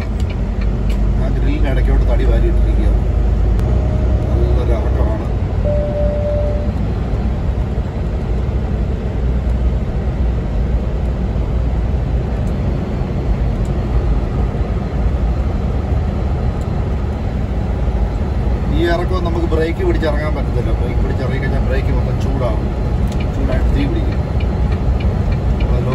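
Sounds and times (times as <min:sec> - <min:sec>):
truck engine and road rumble: 0:00.0 - 0:25.9
short single tone: 0:05.6 - 0:06.9.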